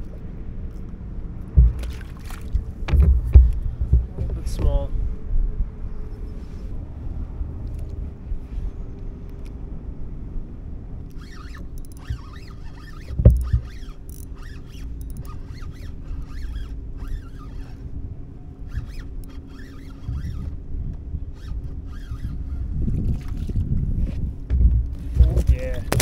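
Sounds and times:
wind rumbling on microphone: 0.0 - 26.0
fishing reel scratching: 11.1 - 17.8, 18.6 - 20.5, 21.4 - 22.7.

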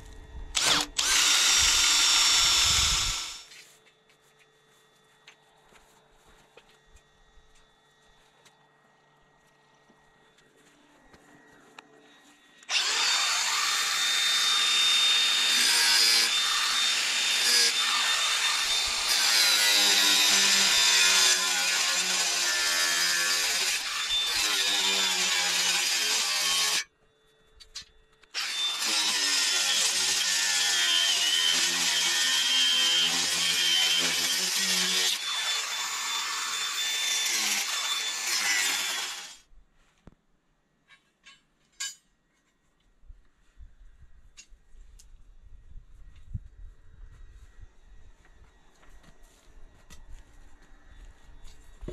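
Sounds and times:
chainsaw cutting wood: 0.6 - 3.5, 12.7 - 26.9, 28.3 - 39.4.

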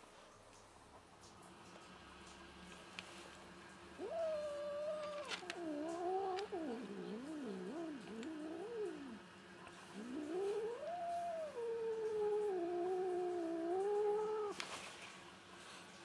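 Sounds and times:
cat yowling: 4.0 - 9.2, 9.9 - 14.6.

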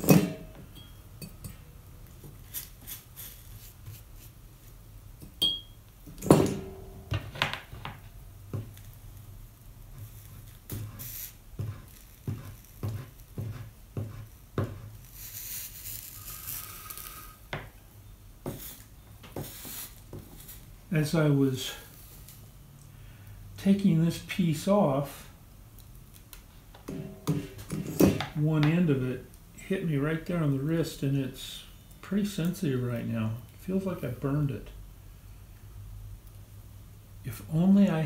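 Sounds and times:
soldering tools tapping on glass: 5.2 - 9.0
soft hiss: 8.0 - 38.0.

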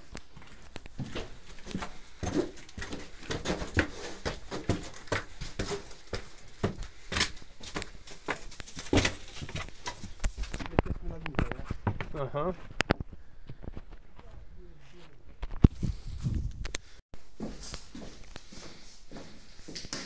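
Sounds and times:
footsteps: 0.0 - 16.5, 17.2 - 20.0
knocks and scrapes: 8.3 - 14.3.

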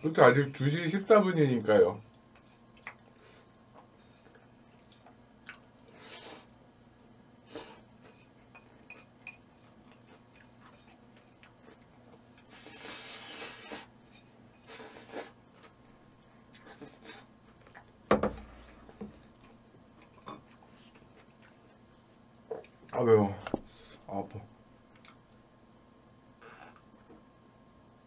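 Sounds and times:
chewing: 2.0 - 6.0, 8.4 - 12.8, 16.5 - 17.9, 19.2 - 21.8, 24.9 - 25.2
slurping: 11.4 - 13.9, 14.6 - 15.4.

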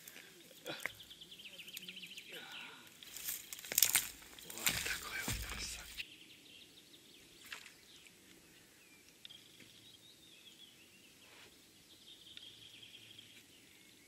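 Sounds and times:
faint birdsong: 0.0 - 14.0.

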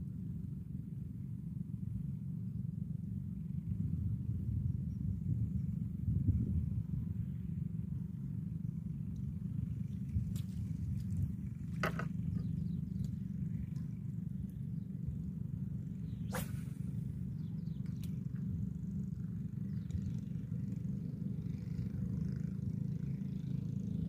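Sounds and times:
wind buffeting microphone: 3.5 - 7.8.

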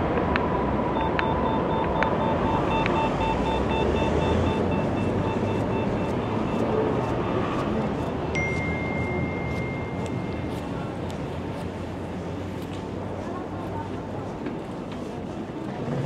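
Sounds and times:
city street traffic: 0.0 - 16.0
crossing signal ticks and beeps: 0.1 - 11.3
steady tone: 0.8 - 11.8.

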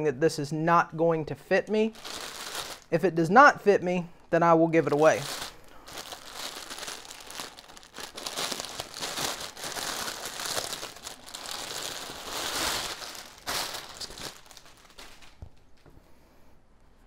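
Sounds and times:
plastic bag crinkling: 1.9 - 2.9, 4.8 - 15.9.

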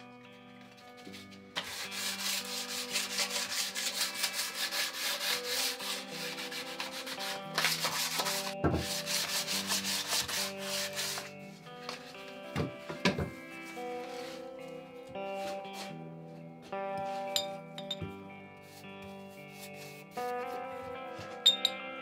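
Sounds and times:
sanding wood by hand: 1.1 - 11.4, 13.7 - 14.4, 15.3 - 16.0, 19.5 - 20.4.

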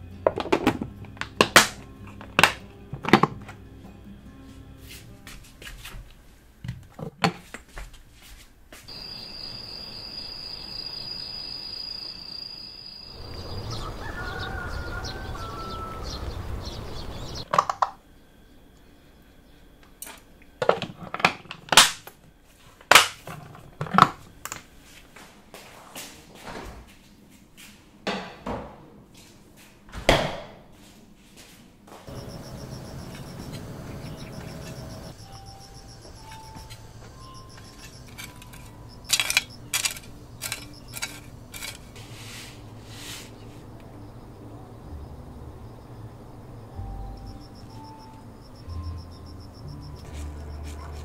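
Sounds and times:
refrigerator humming: 32.1 - 51.0
hoe striking stony soil: 37.6 - 42.0.

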